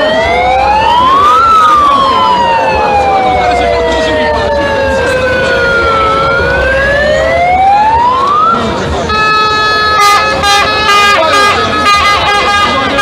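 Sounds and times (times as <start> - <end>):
siren wailing: 0.0 - 10.0.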